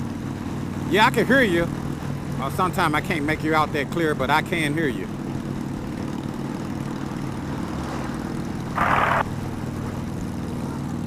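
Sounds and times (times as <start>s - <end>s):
motorcycle engine cruising: 0.0s - 11.0s
road and wind noise: 0.0s - 11.0s
radio static burst: 8.8s - 9.2s.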